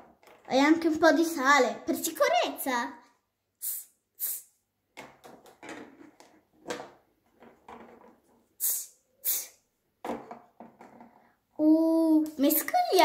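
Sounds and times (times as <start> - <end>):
plastic knocks and clatter: 0.0 - 0.9, 4.9 - 8.4, 10.0 - 11.3
plastic bottle hissing puff: 8.6 - 9.7.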